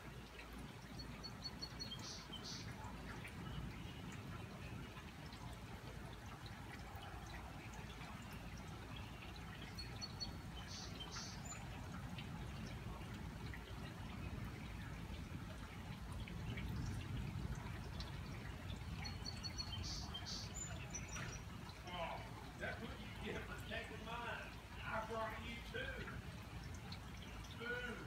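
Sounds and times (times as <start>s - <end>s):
rainwater dripping and trickling: 0.0s - 28.0s
bird chirping: 0.3s - 5.5s, 7.2s - 13.1s, 17.9s - 24.1s.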